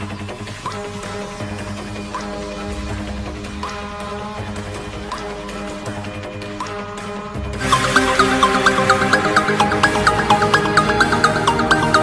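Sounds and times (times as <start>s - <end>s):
electronic ringtone music: 7.6s - 12.0s.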